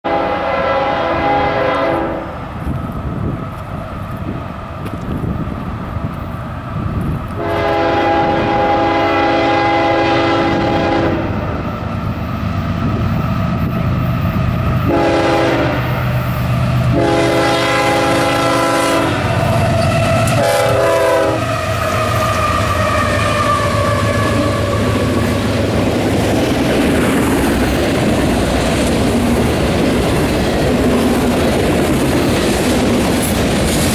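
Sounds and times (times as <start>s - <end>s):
train air horn blasts: 0.0s - 2.4s, 7.4s - 11.6s, 14.8s - 16.3s, 16.9s - 25.4s
train rumbling: 0.0s - 33.9s.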